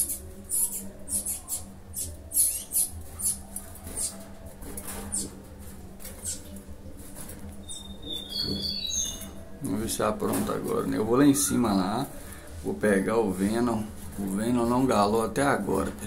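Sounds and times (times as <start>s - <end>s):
songbirds chipping: 0.0s - 4.3s, 6.1s - 6.6s, 7.6s - 12.5s.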